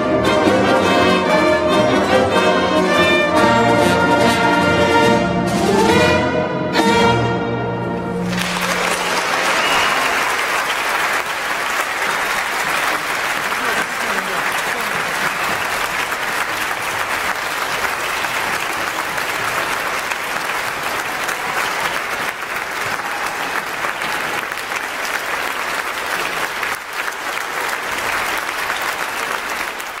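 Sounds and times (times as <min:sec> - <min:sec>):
large audience applauding: 0:08.2 - 0:30.0.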